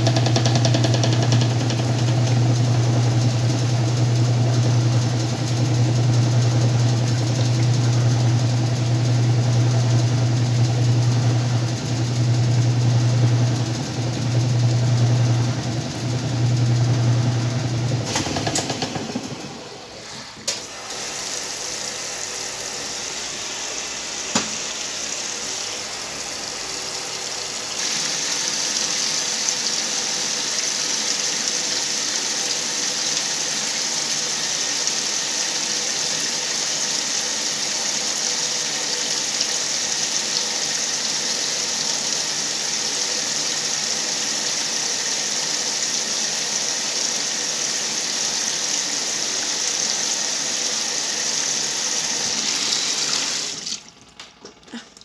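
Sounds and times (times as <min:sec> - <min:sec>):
washing machine click: 0:00.0 - 0:02.3, 0:18.0 - 0:19.5, 0:24.3 - 0:24.8
water pouring into washing machine: 0:00.0 - 0:55.0.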